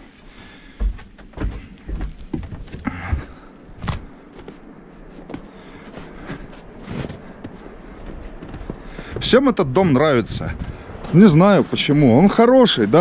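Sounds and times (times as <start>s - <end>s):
footsteps and handling thuds: 0.0s - 9.4s.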